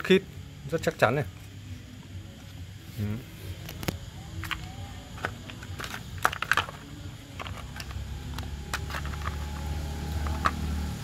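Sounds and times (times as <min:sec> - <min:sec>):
low steady hum: 0:00.0 - 0:11.0
plastic cover clicking and knocking: 0:05.2 - 0:09.6.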